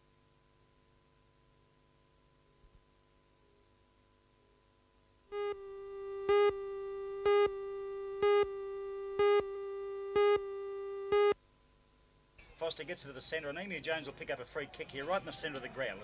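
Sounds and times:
buzzy electronic tone: 5.3 - 11.4
loud beeps: 5.3 - 11.4.

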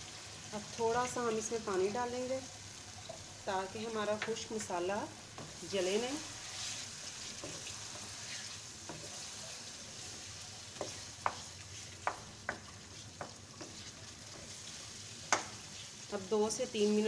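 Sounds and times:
food sizzling in a wok: 0.0 - 17.0
spatula clicking against pan: 15.3 - 15.6.

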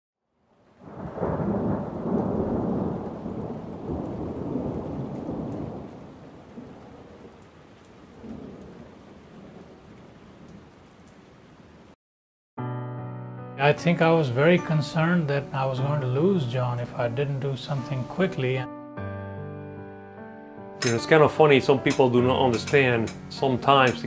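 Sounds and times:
rain hiss: 0.6 - 12.0, 14.5 - 18.4
thunder rolling: 0.8 - 10.6.

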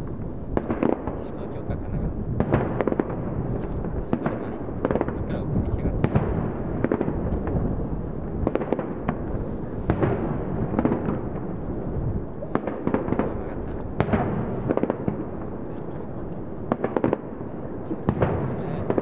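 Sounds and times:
fireworks bursting: 0.0 - 19.0.

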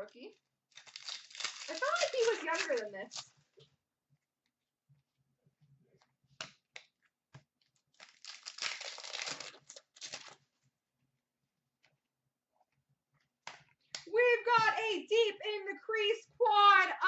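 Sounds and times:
foil pack tearing and crinkling: 0.7 - 3.4, 8.0 - 10.4.

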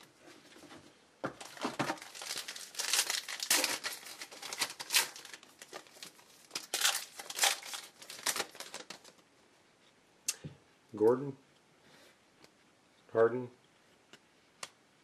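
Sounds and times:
foil wrapper tearing and crinkling: 1.4 - 9.2.

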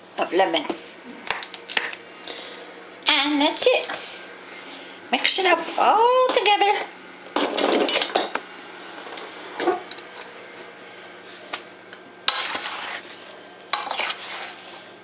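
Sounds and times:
utensil scraping metal pot: 12.3 - 14.9.

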